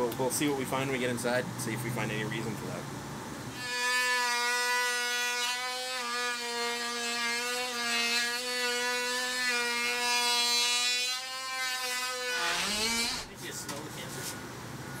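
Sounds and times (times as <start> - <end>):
power tool whining cutting plastic: 3.5 - 13.3.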